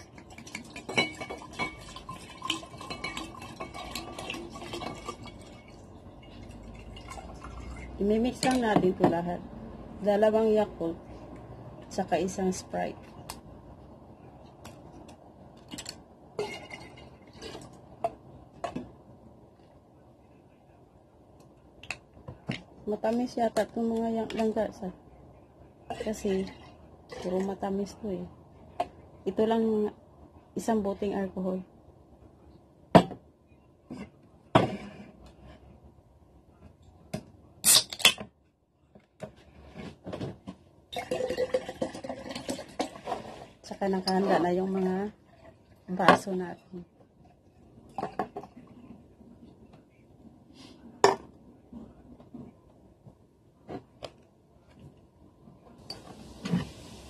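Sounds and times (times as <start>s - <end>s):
liquid pouring into pitcher: 0.0s - 8.0s, 40.9s - 43.6s
soda can opening with hiss: 37.6s - 38.2s.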